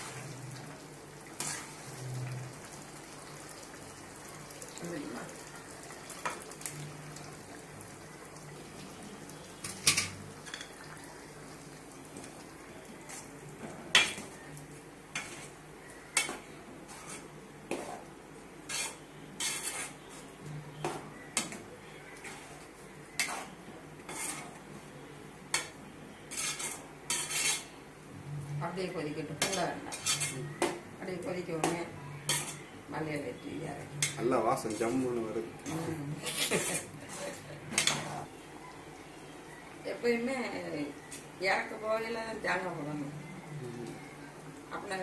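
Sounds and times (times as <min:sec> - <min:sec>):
metal ladle scraping a pot: 0:16.2 - 0:18.0, 0:18.7 - 0:20.2, 0:23.2 - 0:24.6, 0:25.6 - 0:27.8, 0:29.4 - 0:30.4, 0:32.2 - 0:32.7.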